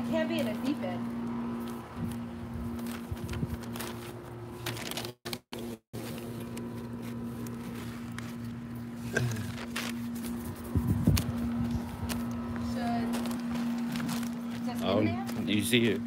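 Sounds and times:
steady low hum: 5.6 - 16.0.

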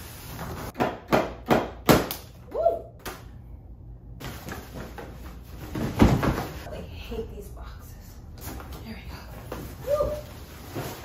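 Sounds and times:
boxes scraping on wooden floor: 9.5 - 11.0.

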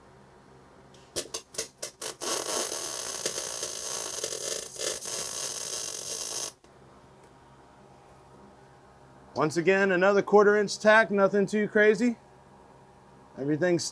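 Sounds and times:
welding arc sputtering and buzzing: 1.2 - 6.7.

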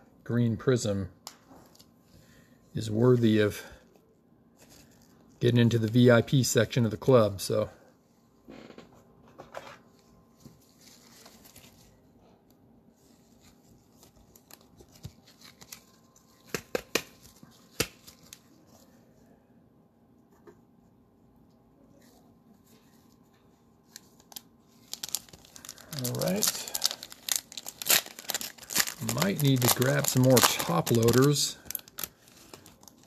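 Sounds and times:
plastic sleeves rustling: 9.8 - 19.0, 22.0 - 33.0
card sleeve taps and clicks: 16.4 - 18.1.

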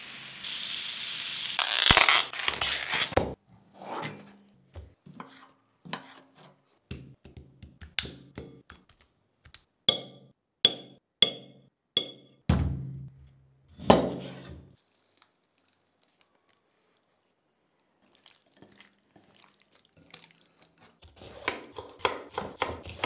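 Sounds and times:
meat sizzling on grill pan: 0.0 - 1.9.

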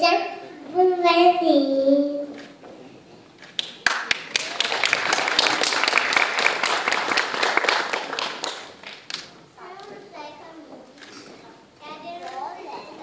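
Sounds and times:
audience clapping: 3.5 - 9.4.

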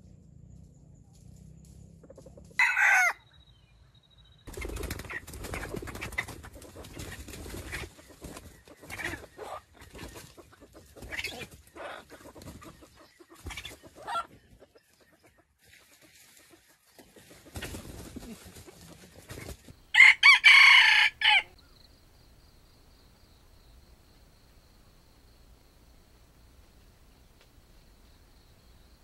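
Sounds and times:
rooster crowing: 2.6 - 3.2, 19.9 - 21.6
soft chicken clucks: 5.0 - 19.7.

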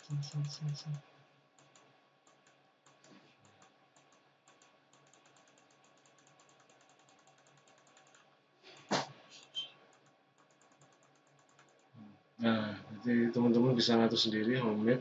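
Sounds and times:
computer mouse clicks: 1.6 - 11.9.

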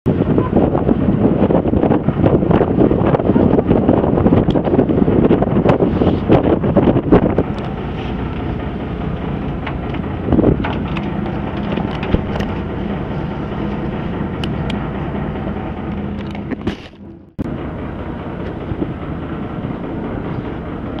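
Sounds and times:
boat engine rumbling: 0.0 - 21.0
wind buffeting microphone: 0.0 - 21.0.

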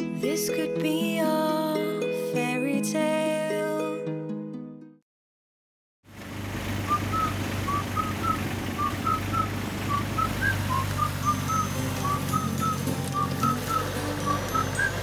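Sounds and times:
excavator diesel engine running: 6.1 - 15.0
short two-note whistle: 6.9 - 15.0.

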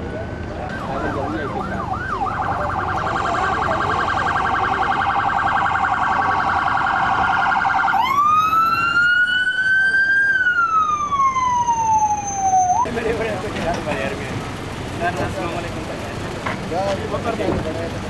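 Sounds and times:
electronic siren warbling and wailing: 0.7 - 12.9.

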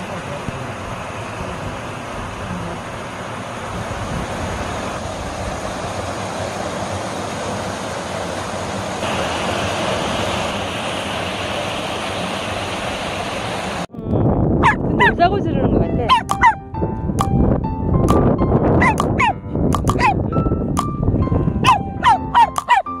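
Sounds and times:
water rushing over rocks: 0.0 - 13.9.

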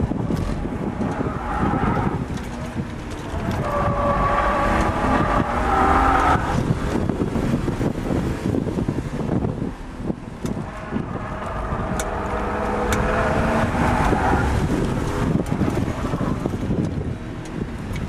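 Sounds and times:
car engine running hard: 0.0 - 18.0
road and wind noise: 0.0 - 18.0
tyres squealing: 0.4 - 6.6.

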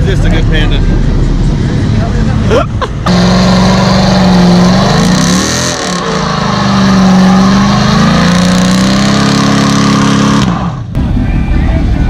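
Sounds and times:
car engine revving hard: 3.1 - 11.0.

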